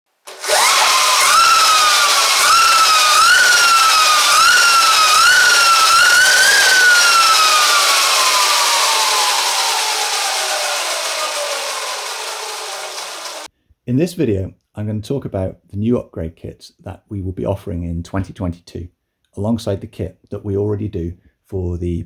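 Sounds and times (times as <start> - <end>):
electric motor whine: 0.3 - 13.5.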